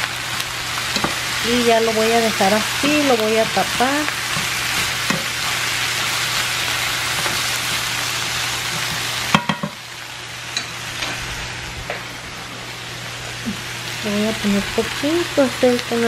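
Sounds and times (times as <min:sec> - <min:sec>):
chicken sizzling in a frying pan: 0:00.0 - 0:16.0.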